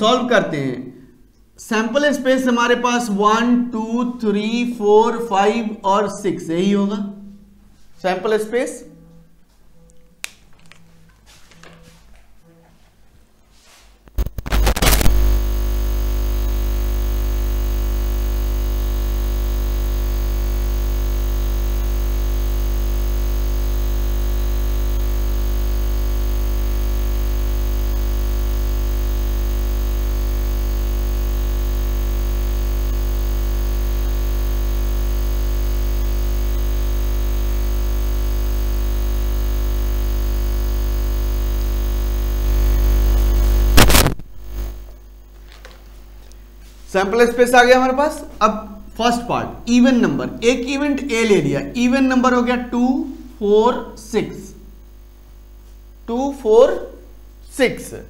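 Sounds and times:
electronic drone of held tones: 14.2 - 44.9
deep hum: 14.5 - 44.9.

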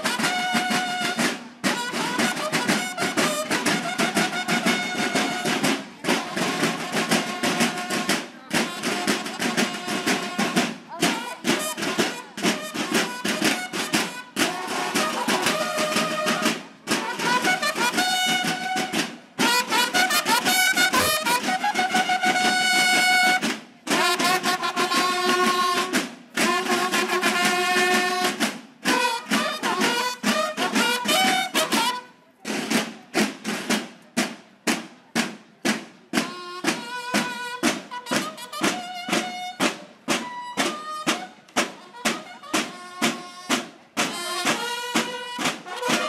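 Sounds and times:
bugles playing: 0.0 - 32.0, 36.6 - 46.0
steady drum beat: 0.0 - 46.0
brass horns playing held notes: 19.5 - 23.1.

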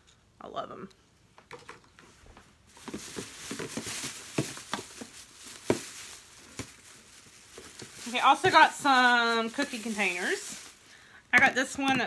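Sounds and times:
rustling of shopping items: 1.5 - 12.0
plastic container knocks and clatters: 2.8 - 6.8.

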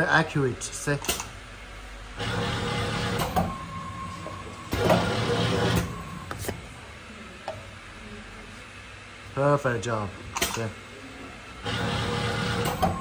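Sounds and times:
printing machine whining: 2.1 - 6.8, 11.4 - 13.0.

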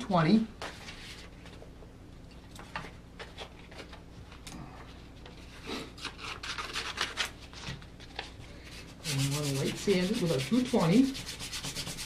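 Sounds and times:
sandpaper rustling: 8.8 - 12.0.

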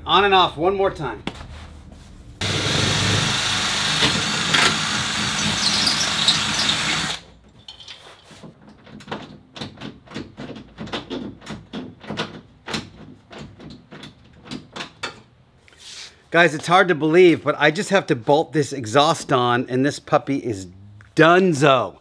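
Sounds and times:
cordless drill whining: 2.4 - 7.2.

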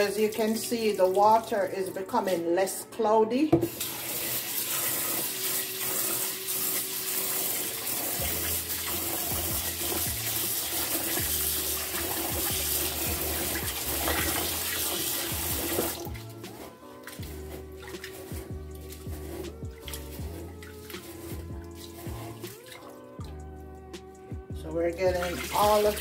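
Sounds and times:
tap water running into pot: 0.0 - 2.2, 3.6 - 23.4, 25.0 - 26.0
hands swishing rice grains: 16.4 - 22.6.

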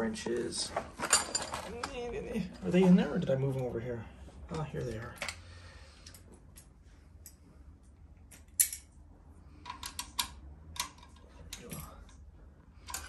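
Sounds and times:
metal wrenches clinking: 1.0 - 2.1.

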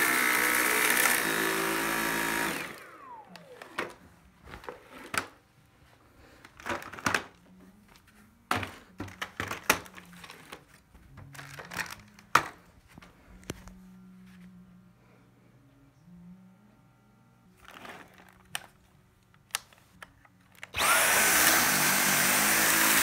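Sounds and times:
vacuum motor winding down: 0.0 - 4.0, 20.7 - 23.0.

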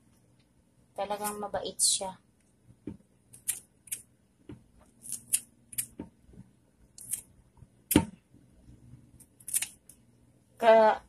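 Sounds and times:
scissors snipping: 3.3 - 4.0, 5.0 - 6.0, 7.0 - 7.3, 9.2 - 9.8.

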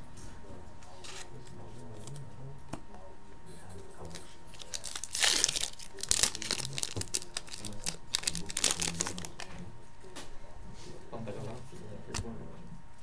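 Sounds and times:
cards rustling and clicking: 4.0 - 9.6
wrapper tearing and crinkling: 4.5 - 9.5.

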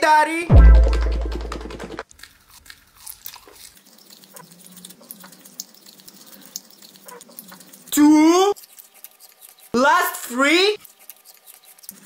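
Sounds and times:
deep bass note: 0.5 - 1.9
wet chewing and bites: 0.7 - 12.0.

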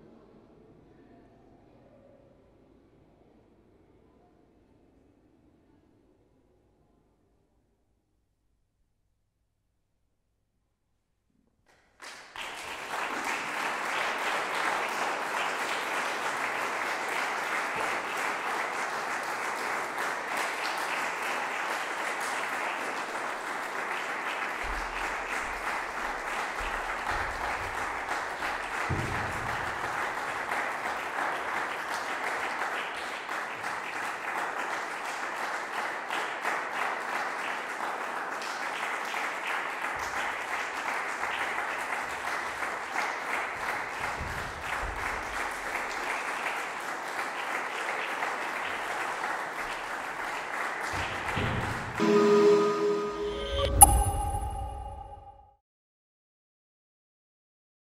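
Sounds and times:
audience applauding: 11.8 - 54.2.

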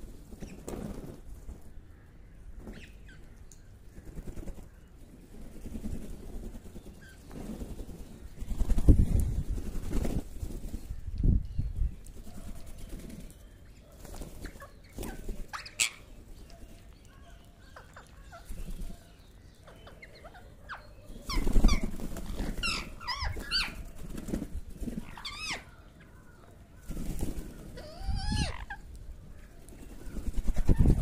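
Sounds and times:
parakeets screeching: 22.6 - 23.8, 25.0 - 25.7, 27.8 - 28.8.

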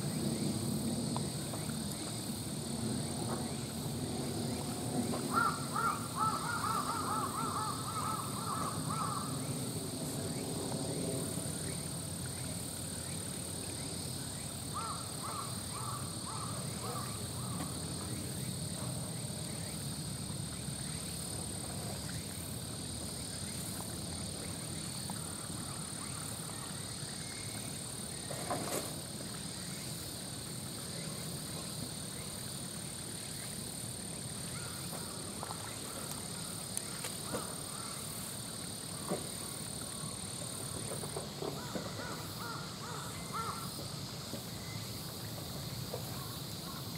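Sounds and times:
bird calling: 5.2 - 9.4.

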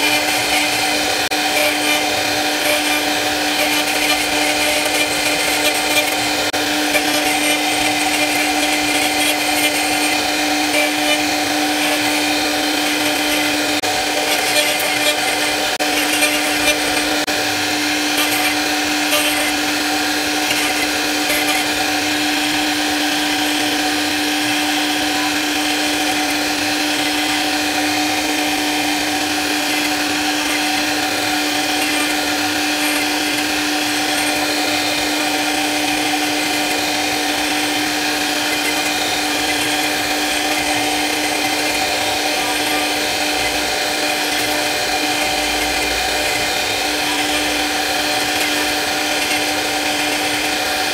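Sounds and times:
bit cutting wood: 0.0 - 50.9
router spindle whine: 0.0 - 50.9.

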